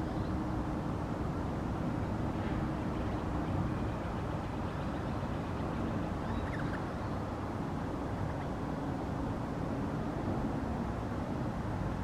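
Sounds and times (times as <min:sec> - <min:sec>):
noisy background rumble: 0:00.0 - 0:12.0
faint bird chirps: 0:06.2 - 0:07.2.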